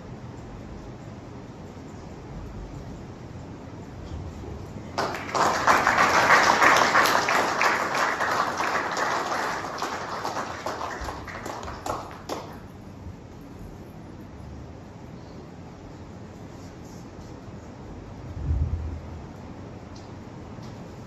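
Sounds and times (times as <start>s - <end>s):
audience applauding: 5.0s - 12.7s.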